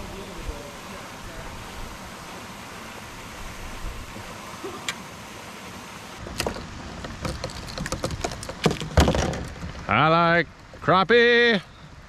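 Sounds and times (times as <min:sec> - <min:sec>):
hiss of water and wind: 0:00.0 - 0:12.0
sharp knocks against kayak: 0:06.2 - 0:09.9.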